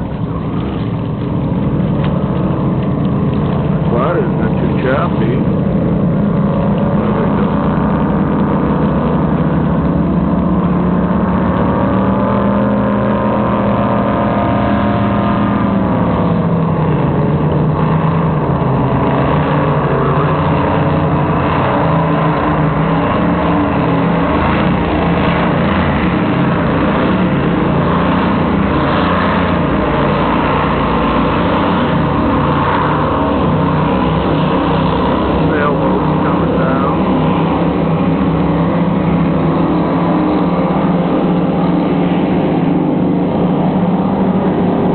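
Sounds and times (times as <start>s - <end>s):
powerboat engines passing: 0.0s - 44.9s.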